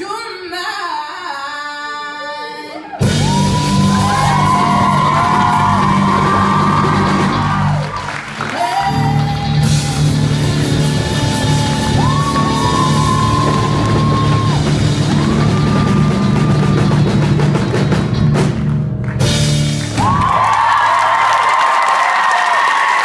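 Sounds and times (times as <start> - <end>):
audience whooping and cheering: 2.7 - 17.9, 19.2 - 23.0
live rock band playing: 3.0 - 20.5.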